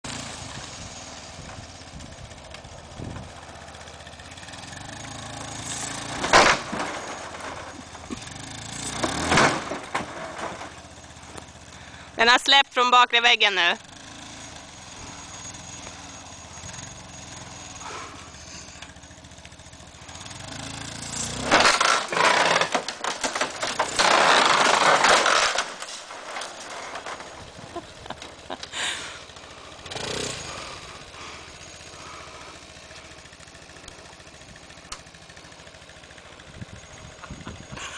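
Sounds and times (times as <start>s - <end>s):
atv engine running: 0.0s - 37.9s
timber and metal sheeting crashing: 5.2s - 11.3s, 20.1s - 28.7s
debris knocking: 5.9s - 11.3s, 20.9s - 28.6s.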